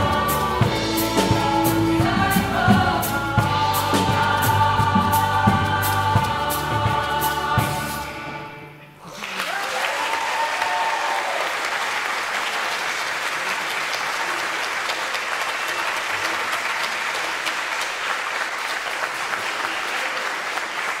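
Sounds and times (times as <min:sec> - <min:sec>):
crowd applauding: 0:09.0 - 0:21.0.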